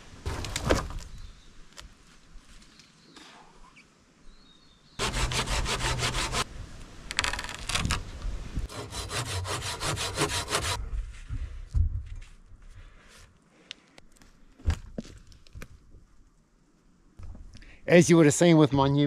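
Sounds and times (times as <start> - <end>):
hand saw cutting wood: 5.0 - 6.5, 8.7 - 10.8.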